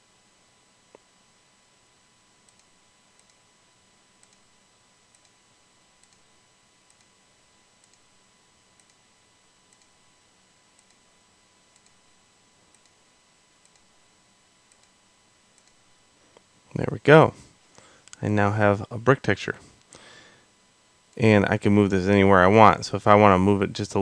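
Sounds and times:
low steady hiss: 0.0s - 24.0s
computer mouse clicks: 2.4s - 3.4s, 4.2s - 4.5s, 5.1s - 5.4s, 6.0s - 6.3s, 6.9s - 7.1s, 7.8s - 8.1s, 8.8s - 9.0s, 9.7s - 10.0s, 10.8s - 11.0s, 11.7s - 12.0s, 12.7s - 13.0s, 13.6s - 13.9s, 14.7s - 15.0s, 15.6s - 15.8s.

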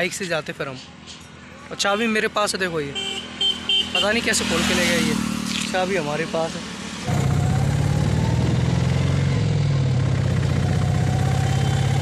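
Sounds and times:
auto-rickshaw engine running: 4.0s - 12.0s.

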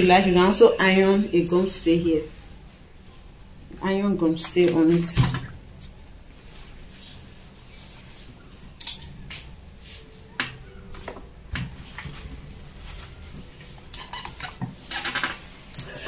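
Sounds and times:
fabric rustling: 4.6s - 10.4s, 11.7s - 15.7s
fabric crinkles: 5.7s - 10.4s, 11.7s - 15.7s.

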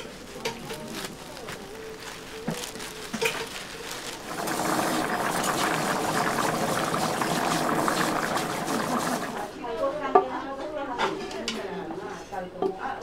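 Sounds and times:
liquid bubbling in a pot: 4.1s - 9.6s.

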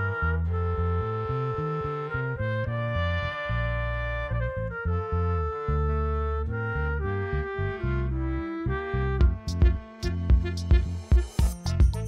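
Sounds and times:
background music with steady beat: 8.8s - 12.0s.

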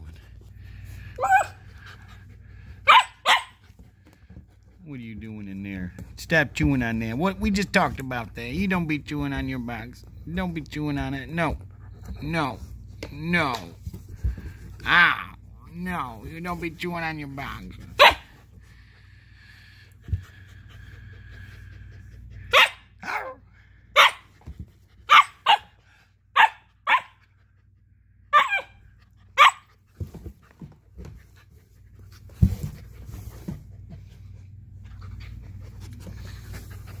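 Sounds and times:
puppy yapping: 1.2s - 1.6s, 2.8s - 3.6s, 18.0s - 18.3s, 22.5s - 23.4s, 24.0s - 24.3s, 25.1s - 25.7s, 26.4s - 27.2s, 28.3s - 28.8s, 29.4s - 29.7s
low knocks and scuffs: 29.9s - 34.4s.

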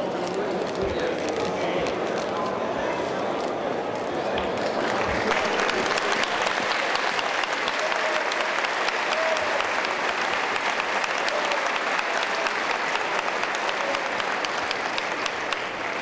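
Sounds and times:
crowd applauding and cheering: 4.2s - 16.0s.

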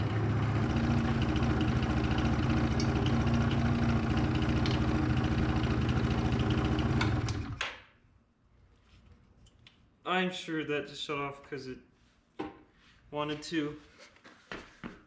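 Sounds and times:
scooter engine idling: 0.0s - 7.6s.

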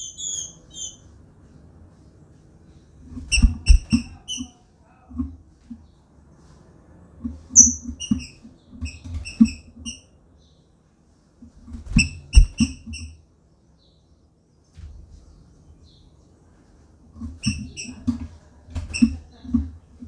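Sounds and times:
bird giving short high chirps: 0.0s - 1.0s, 7.6s - 7.9s.

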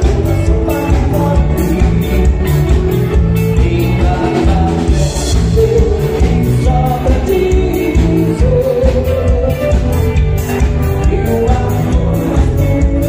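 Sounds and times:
dance band over loudspeakers: 0.0s - 13.0s
person singing: 0.0s - 13.0s
steady drumbeat: 0.0s - 13.0s.

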